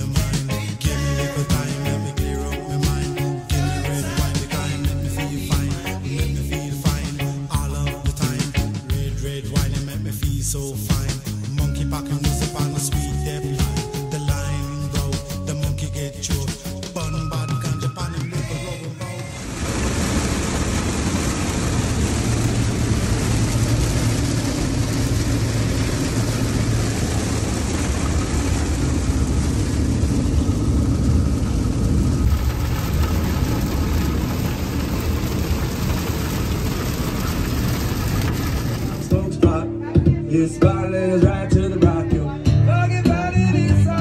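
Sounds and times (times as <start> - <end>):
engine rumble: 0.0 - 17.3, 19.3 - 42.0
wind and road noise: 19.4 - 39.1.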